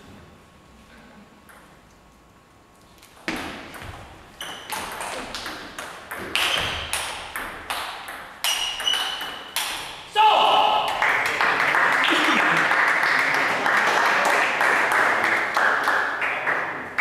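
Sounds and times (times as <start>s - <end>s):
table tennis ball pinging: 3.3s - 10.0s.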